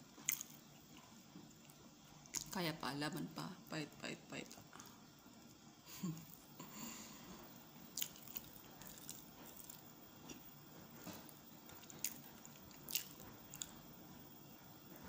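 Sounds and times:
person chewing: 0.2 - 2.6, 7.5 - 13.8.

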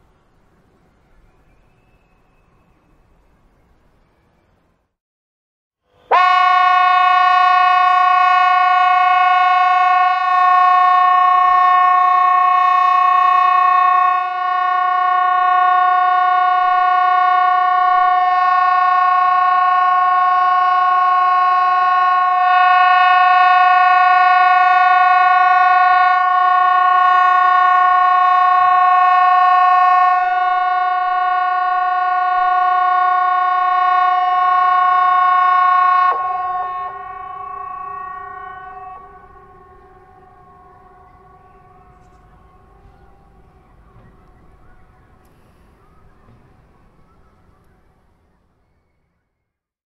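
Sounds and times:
warning horn steady tone: 5.8 - 47.8.

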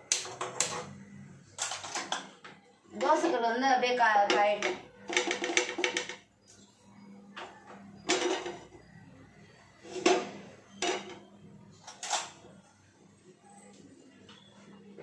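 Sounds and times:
metal kitchenware knocking and clinking: 1.6 - 3.4, 4.3 - 6.3, 7.4 - 8.8, 9.9 - 12.4.

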